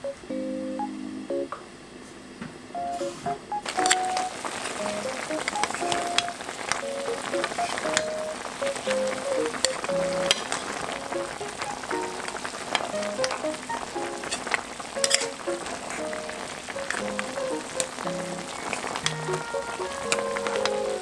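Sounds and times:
spatula scraping a pan: 0:03.7 - 0:06.3, 0:07.4 - 0:08.2, 0:09.0 - 0:10.8, 0:14.0 - 0:16.2
meat sizzling in a wok: 0:03.7 - 0:21.0
light background tune: 0:15.0 - 0:21.0.

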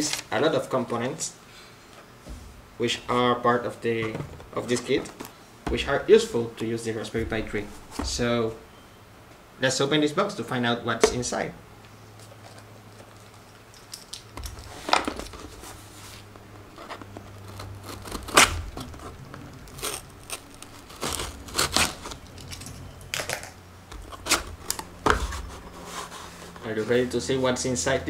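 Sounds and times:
cardboard scraping and sliding: 0:14.7 - 0:22.2, 0:24.0 - 0:27.8
paper sticker tearing: 0:16.8 - 0:23.4.

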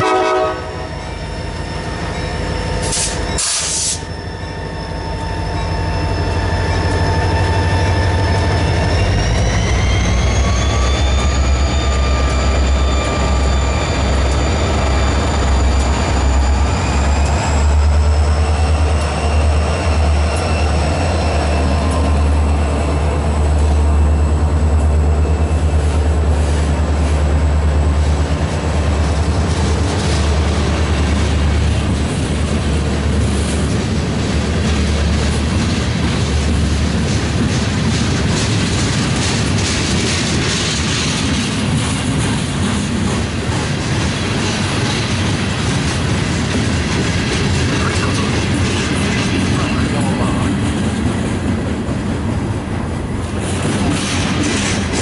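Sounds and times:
diesel locomotives rumbling: 0:00.0 - 0:55.0.

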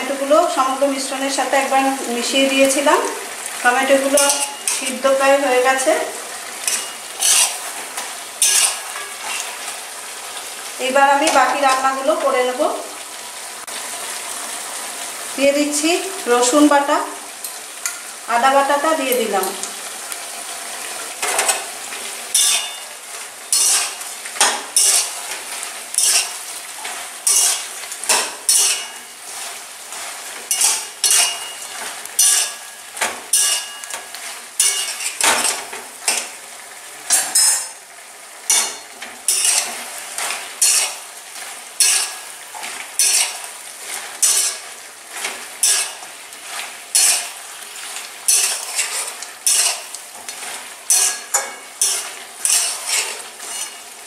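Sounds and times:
hot oil sizzling: 0:00.0 - 0:54.0
metal spatula scraping a pan: 0:04.0 - 0:05.1, 0:06.6 - 0:09.8, 0:21.2 - 0:36.4, 0:37.1 - 0:37.8, 0:38.4 - 0:54.0.

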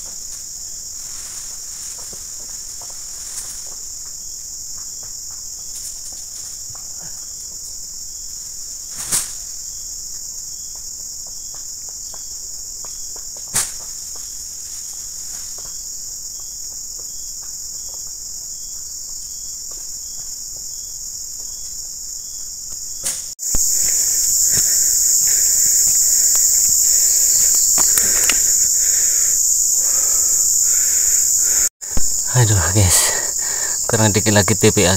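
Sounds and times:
insects chirring: 0:00.0 - 0:34.9
rustling: 0:23.1 - 0:31.7
sharp clicks: 0:27.4 - 0:28.6.

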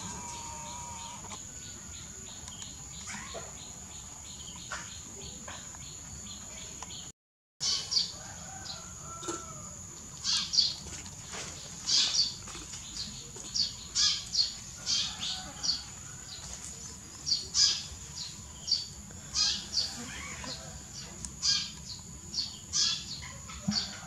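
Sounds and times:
birds chirping: 0:00.0 - 0:09.6.

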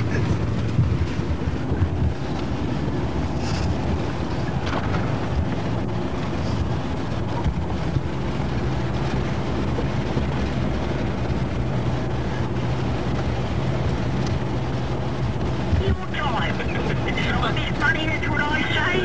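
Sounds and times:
car engine hum: 0:00.0 - 0:19.0
road and tyre noise: 0:00.0 - 0:19.0.

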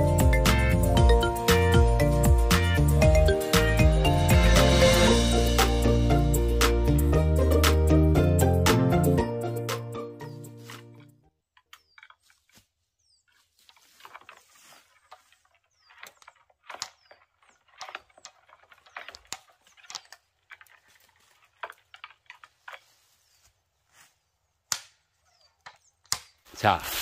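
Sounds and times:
faint rustling and crackling: 0:10.6 - 0:24.3.

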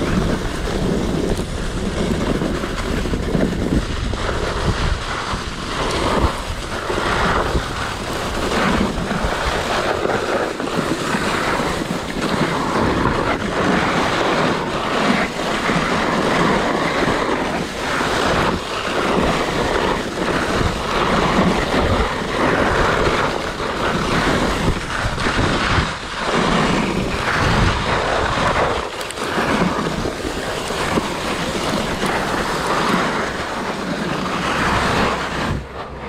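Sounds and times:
skis sliding over snow: 0:00.0 - 0:36.0
wind buffeting microphone: 0:00.0 - 0:36.0.

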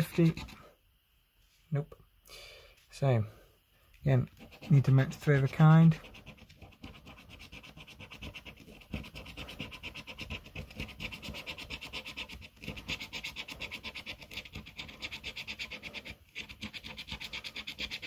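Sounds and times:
coin scraping a scratchcard: 0:00.0 - 0:00.6, 0:04.4 - 0:18.0.

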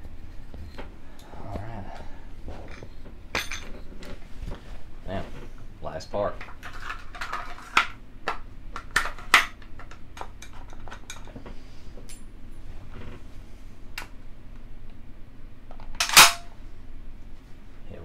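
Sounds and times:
rifle parts clicking and knocking: 0:15.8 - 0:16.5.

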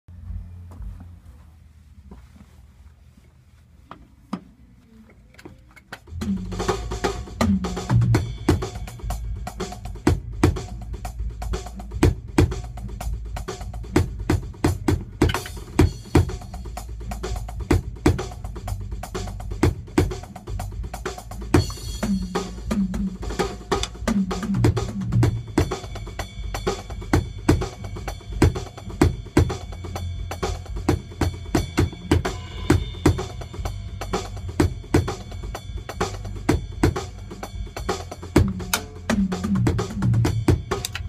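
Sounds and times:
electronic drum kit groove: 0:05.8 - 0:41.0.

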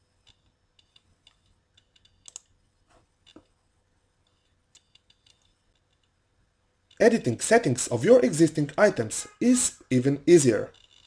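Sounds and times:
computer keyboard and mouse clicks: 0:00.3 - 0:02.5.

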